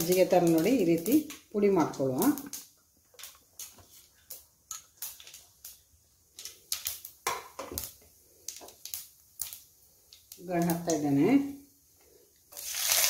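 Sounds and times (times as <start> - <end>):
rice crumbled in steel plate: 12.5 - 13.0.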